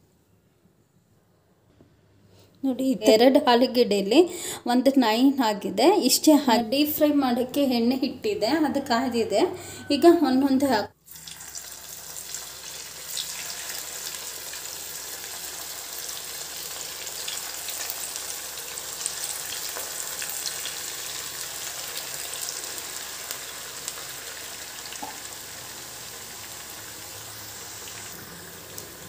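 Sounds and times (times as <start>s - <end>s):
deep-frying sizzle: 11.0s - 29.0s.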